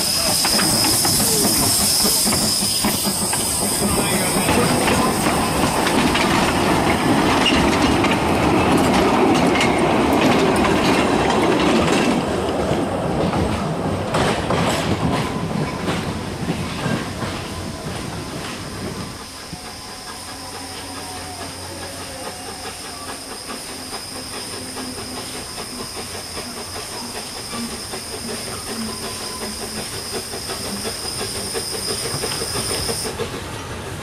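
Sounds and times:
steam hissing: 0:00.0 - 0:09.8, 0:14.6 - 0:34.0
wheels clickety-clack over rail joints: 0:00.0 - 0:34.0.

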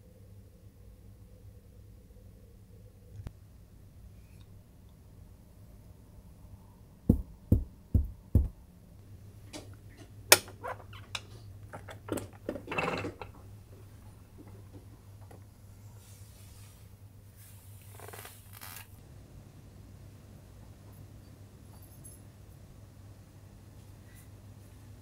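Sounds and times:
dull thumps: 0:07.1 - 0:08.6.

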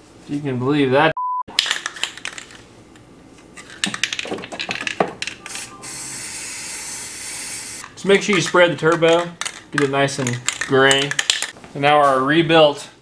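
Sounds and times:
aerosol spray can hissing: 0:05.5 - 0:07.8
metallic clicks and clinks: 0:08.3 - 0:11.6.

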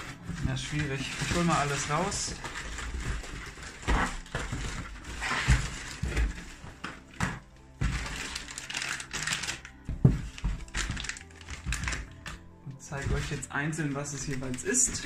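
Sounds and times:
cardboard box scraping: 0:00.0 - 0:07.0
newspaper rustling: 0:00.0 - 0:15.0
small packages clicking and knocking: 0:00.0 - 0:15.0.

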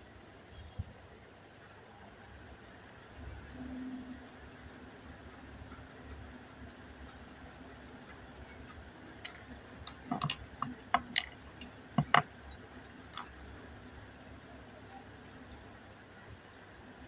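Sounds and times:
small hard objects clicking: 0:09.0 - 0:13.6.

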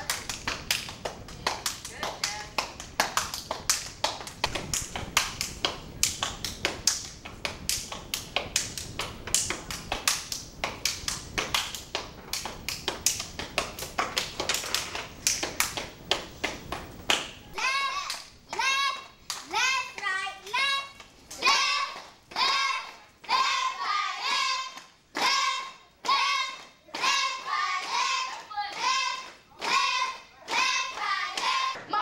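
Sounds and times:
hand claps: 0:00.0 - 0:17.4.

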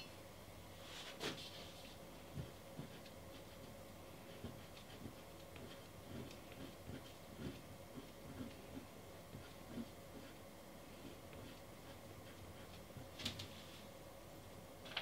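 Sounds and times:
pastel tapping and scratching paper: 0:02.3 - 0:03.6, 0:04.2 - 0:10.4.

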